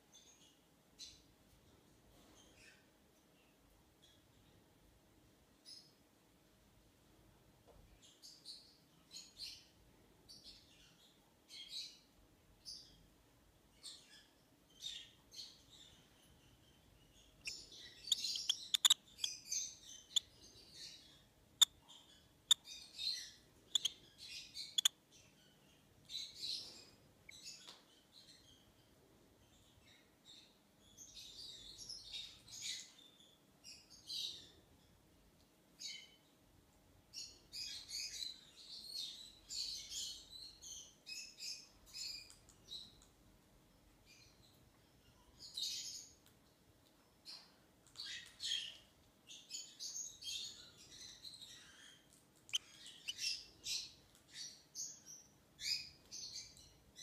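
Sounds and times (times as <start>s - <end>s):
bird chick squeaky chirps: 17.2s - 20.4s, 21.6s - 25.0s, 50.4s - 54.7s.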